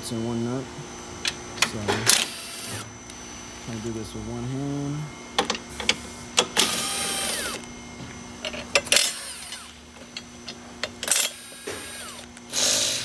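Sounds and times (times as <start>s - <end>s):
power driver whirring: 2.1s - 3.2s, 6.4s - 7.7s, 8.8s - 9.8s, 11.0s - 13.0s.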